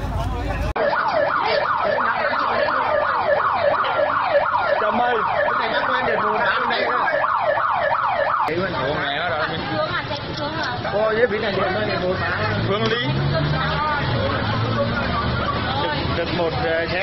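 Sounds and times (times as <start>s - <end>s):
siren yelping: 0.8s - 8.6s.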